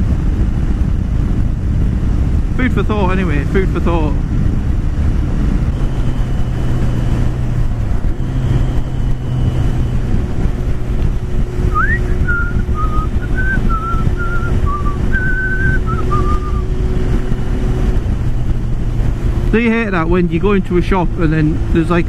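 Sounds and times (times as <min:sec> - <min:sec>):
motorcycle engine running: 0:00.0 - 0:22.0
wind noise: 0:00.0 - 0:22.0
person whistling a tune: 0:11.7 - 0:16.7.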